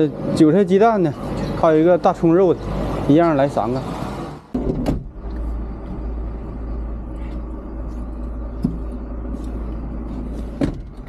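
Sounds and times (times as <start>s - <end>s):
low rumble inside van cabin: 4.6s - 11.0s.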